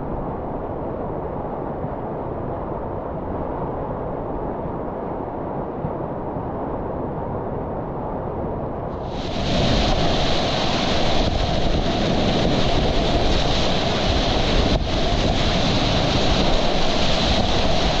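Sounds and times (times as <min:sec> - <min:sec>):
whitewater rushing: 0:09.0 - 0:18.0.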